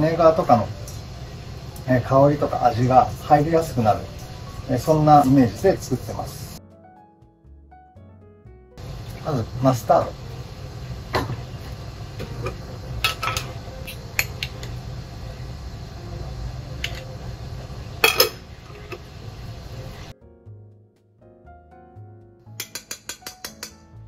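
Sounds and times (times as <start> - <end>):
steady low hum: 0.0 - 6.6, 8.8 - 20.1
spoon clinking on steel bowl: 18.0 - 18.4.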